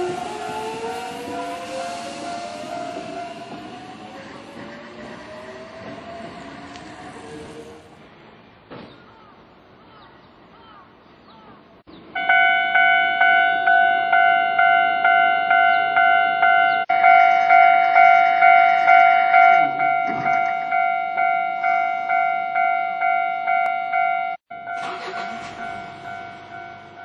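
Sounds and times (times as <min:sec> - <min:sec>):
level crossing warning bell: 0:00.0 - 0:04.2, 0:12.2 - 0:27.0.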